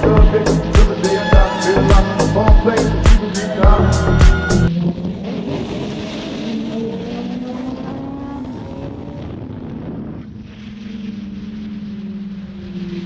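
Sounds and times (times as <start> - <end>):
motorcycle engine revving: 0.0 - 13.0
wind rush: 0.0 - 13.0.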